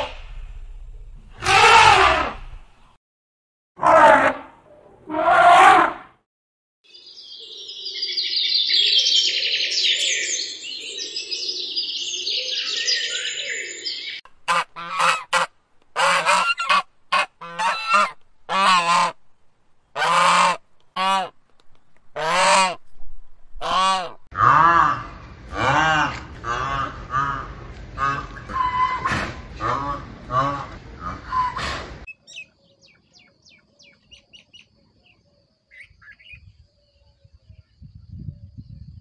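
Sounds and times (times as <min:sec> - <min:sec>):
geese calling: 0:14.4 - 0:19.2, 0:20.0 - 0:21.4, 0:22.2 - 0:22.8, 0:23.6 - 0:32.6
goose honks: 0:14.5 - 0:19.2, 0:20.0 - 0:21.3, 0:22.2 - 0:22.8, 0:23.6 - 0:31.8.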